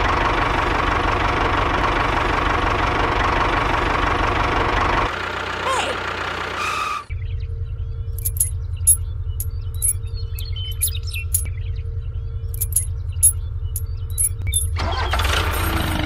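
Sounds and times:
small metal chain clinking: 8.2 - 11.5, 12.6 - 14.8, 15.4 - 15.9.

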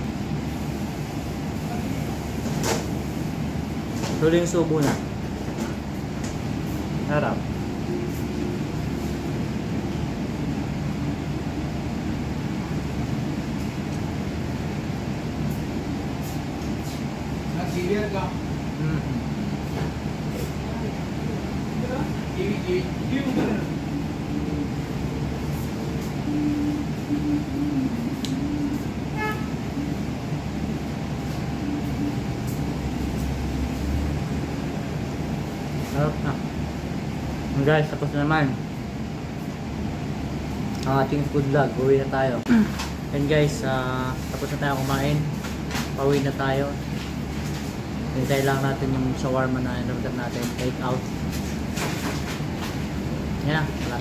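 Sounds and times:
background rumble and hum: 0.0 - 54.0
short pitched tone: 7.6 - 9.4, 26.2 - 30.4.

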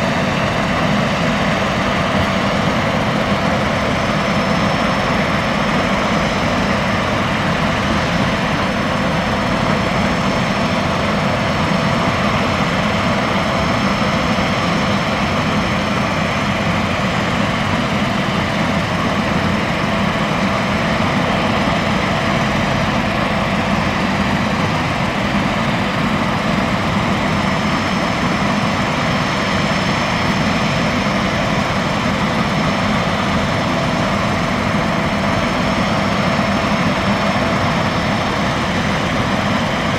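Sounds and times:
jet turbine whine and rumble: 0.0 - 39.9.

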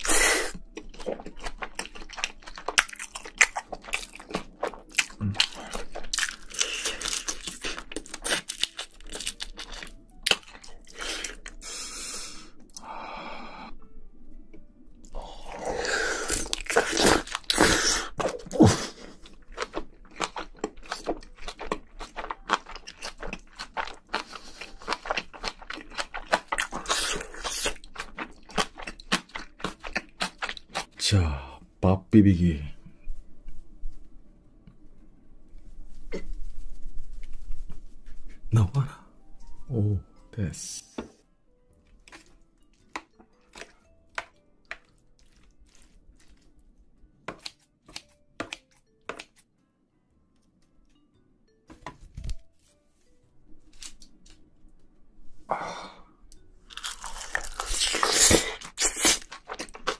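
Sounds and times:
wet crunchy chewing: 0.0 - 11.6, 15.0 - 31.0, 41.9 - 46.6, 56.7 - 59.9.

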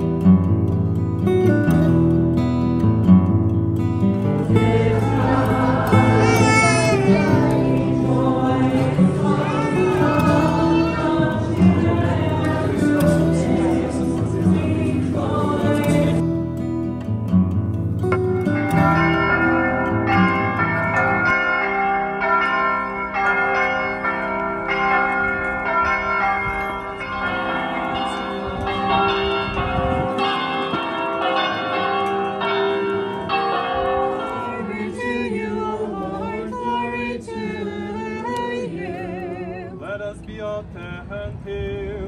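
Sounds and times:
bells ringing: 4.4 - 16.2, 18.2 - 36.8
voices singing: 4.4 - 16.2, 34.1 - 40.2.

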